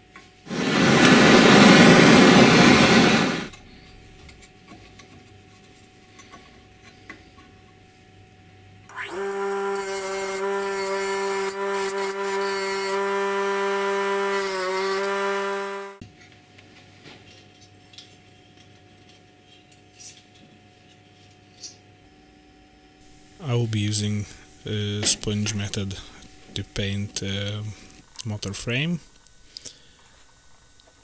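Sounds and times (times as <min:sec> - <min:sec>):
loud hiss: 0:00.5 - 0:03.5
bench grinder motor humming: 0:08.9 - 0:16.0
wire wheel scrubbing metal: 0:08.9 - 0:16.0.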